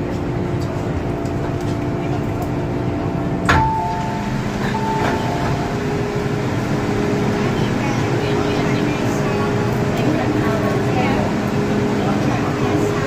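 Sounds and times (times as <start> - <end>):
stopped train humming: 0.0 - 13.0
train door release clunk: 3.4 - 6.2
two-note door chime: 3.5 - 5.9.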